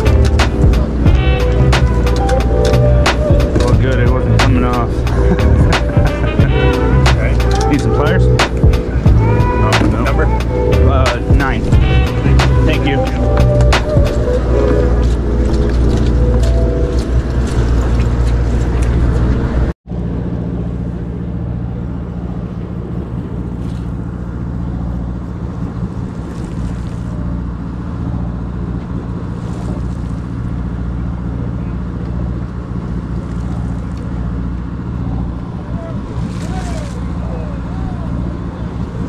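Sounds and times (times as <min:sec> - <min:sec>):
music: 0:00.0 - 0:19.7
boat engine droning: 0:00.0 - 0:39.0.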